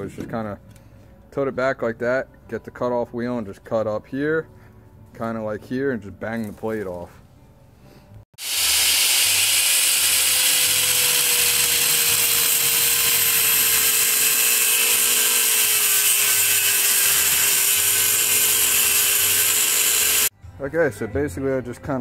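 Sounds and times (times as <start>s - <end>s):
angle grinder cutting steel: 8.4s - 20.3s.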